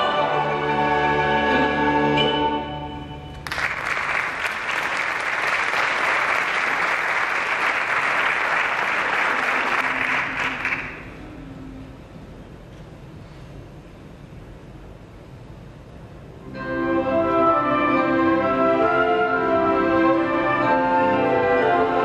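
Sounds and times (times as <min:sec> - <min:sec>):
orchestra and choir chord: 0:00.0 - 0:03.5, 0:16.4 - 0:22.0
audience applause: 0:03.4 - 0:11.2.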